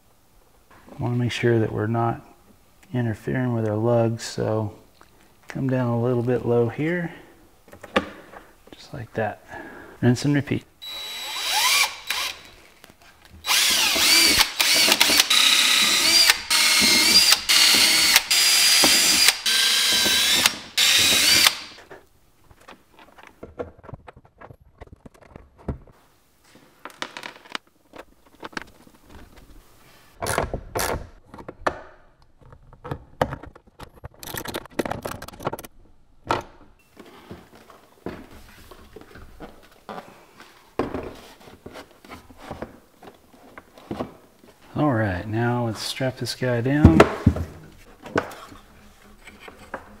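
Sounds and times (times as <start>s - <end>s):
cordless drill boring into plastic: 10.8s - 12.5s, 13.4s - 21.8s.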